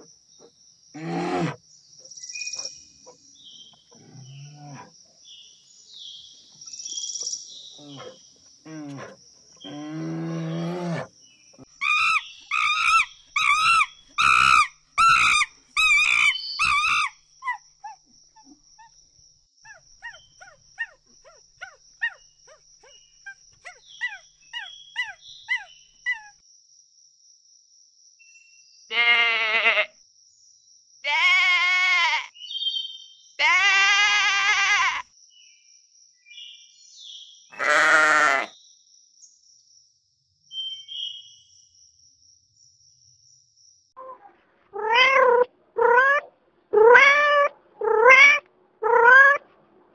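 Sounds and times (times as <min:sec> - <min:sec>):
loud wavering animal cries: 0:01.0 - 0:01.6, 0:11.8 - 0:18.0, 0:33.4 - 0:35.0, 0:37.6 - 0:38.5, 0:44.8 - 0:49.4
low animal call: 0:01.0 - 0:01.6, 0:07.8 - 0:11.1, 0:44.0 - 0:49.5
sheep bleating: 0:28.9 - 0:29.9, 0:31.0 - 0:32.3, 0:37.6 - 0:38.5.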